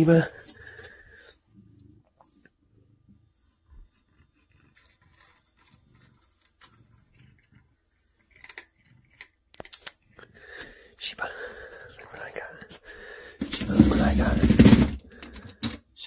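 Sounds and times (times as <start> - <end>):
cat chewing: 3.8 - 10.7.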